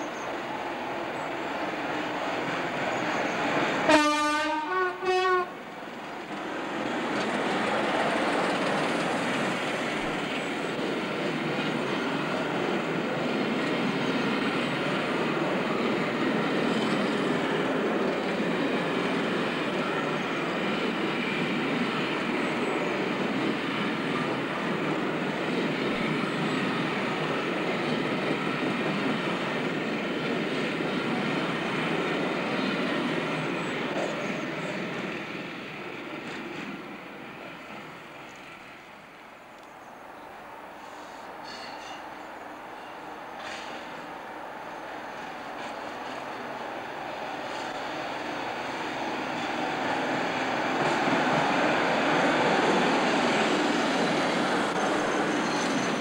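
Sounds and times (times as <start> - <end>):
diesel locomotive engine working: 0.0 - 56.0
train wheels rolling on rails: 0.0 - 56.0
two-tone locomotive horn: 3.9 - 5.6.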